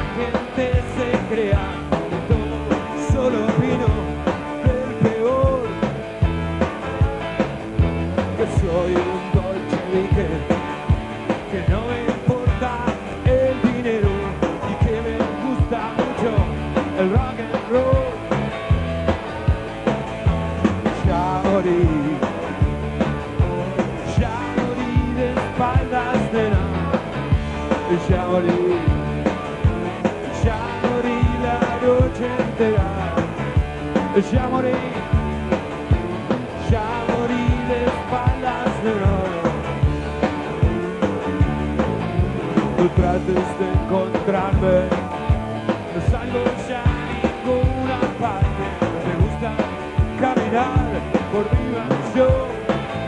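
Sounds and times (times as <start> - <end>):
bass: 0.0 - 53.0
drums: 0.0 - 53.0
electric guitars: 0.0 - 53.0.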